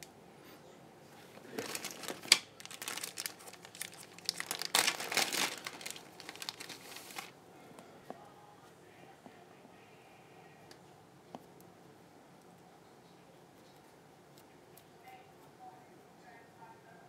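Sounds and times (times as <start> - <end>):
plastic bag crinkling: 1.3 - 7.4
plastic bag snap: 1.5 - 7.3.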